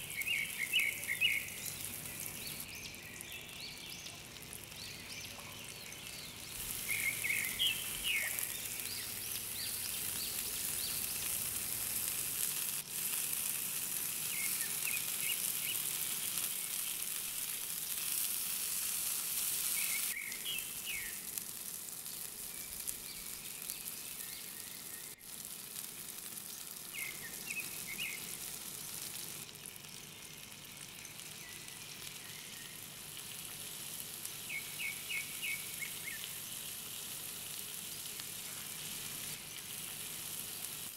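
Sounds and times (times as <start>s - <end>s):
meat sizzling on a grill pan: 0.0s - 40.9s.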